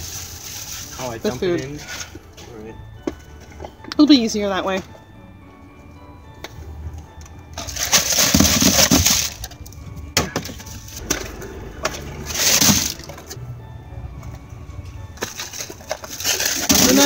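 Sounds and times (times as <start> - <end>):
plastic wrappers crinkling: 0.0 - 2.1, 7.6 - 9.8, 15.2 - 17.0
packages clattering into bin: 7.6 - 13.3, 15.2 - 17.0.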